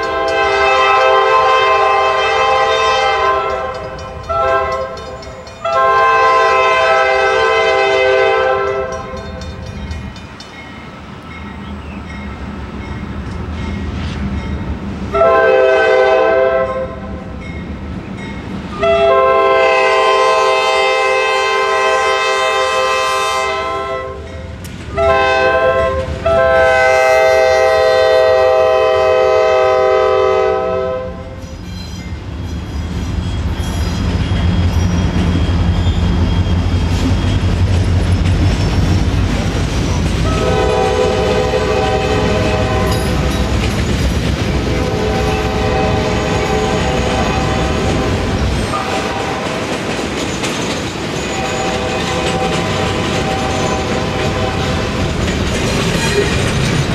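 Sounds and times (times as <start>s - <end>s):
locomotive air horn blasts: 0.0s - 5.0s, 5.6s - 9.1s, 15.1s - 17.0s, 18.8s - 24.3s, 24.9s - 31.4s, 40.3s - 43.4s, 44.8s - 48.1s, 48.7s - 49.5s, 51.4s - 55.0s
train wheels: 0.0s - 56.9s
locomotive diesel engines rumbling: 31.7s - 56.9s.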